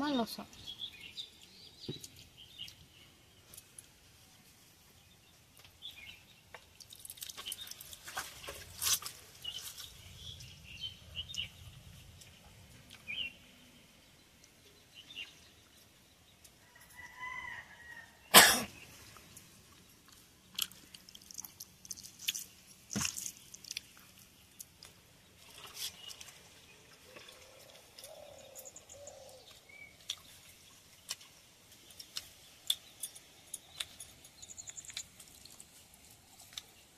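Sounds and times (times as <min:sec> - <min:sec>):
bird calling: 0:27.0 - 0:30.0.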